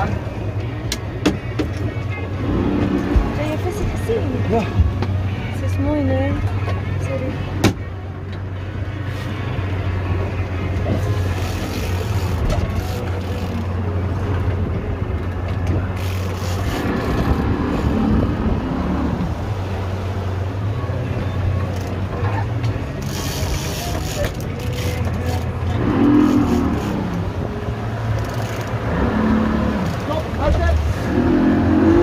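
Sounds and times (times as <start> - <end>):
boat engine droning: 0.0 - 32.0
wind and water rushing: 0.0 - 32.0.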